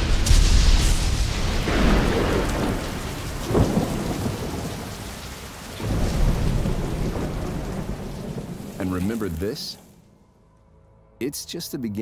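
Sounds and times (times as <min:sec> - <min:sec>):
sharp thunderclap: 0:00.0 - 0:09.2
rolling thunder: 0:00.0 - 0:10.0
heavy rain pouring: 0:00.0 - 0:10.2.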